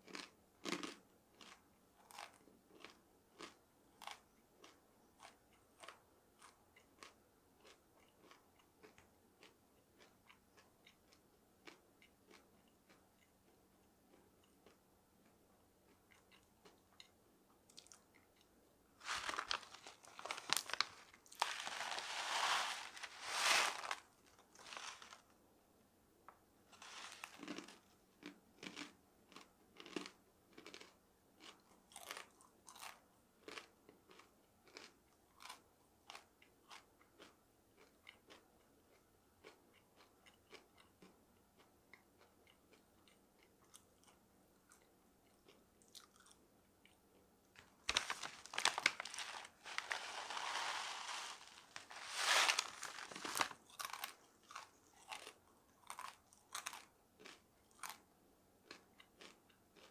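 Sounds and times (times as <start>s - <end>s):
person chewing crunchy food: 0.0s - 14.8s, 15.9s - 25.3s, 26.8s - 47.0s, 47.6s - 59.9s
pouch crinkling: 19.0s - 25.2s, 26.7s - 27.7s, 47.8s - 54.1s.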